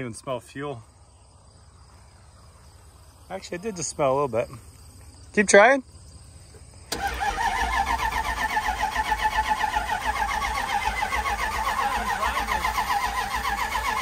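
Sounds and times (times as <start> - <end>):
starter motor cranking engine: 6.9 - 14.0.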